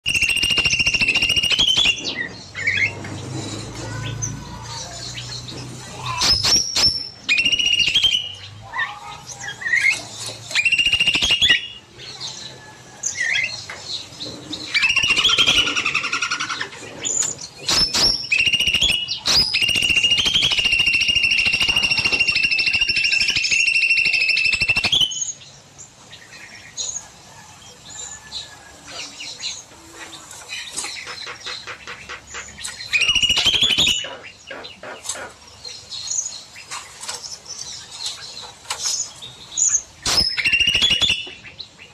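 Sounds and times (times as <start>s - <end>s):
bird rapid trill: 0.0s - 11.9s, 14.6s - 25.4s, 30.7s - 35.2s, 38.8s - 41.6s
birds chirping and whistling: 0.0s - 41.9s.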